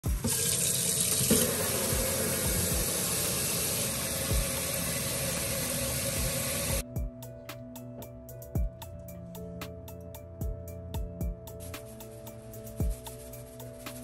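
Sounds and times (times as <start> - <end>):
faucet water splashing into pot: 0.1 - 6.8.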